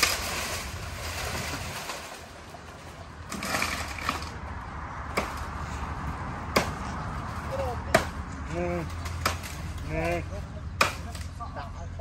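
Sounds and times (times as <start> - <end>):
rustling and scraping: 0.0 - 4.4.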